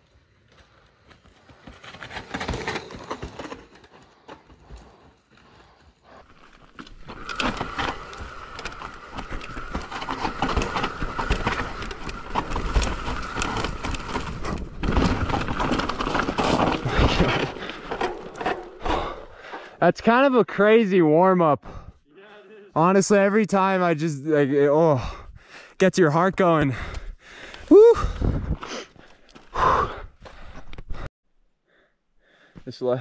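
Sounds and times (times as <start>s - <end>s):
bike clattering over rock: 6.4s - 19.3s.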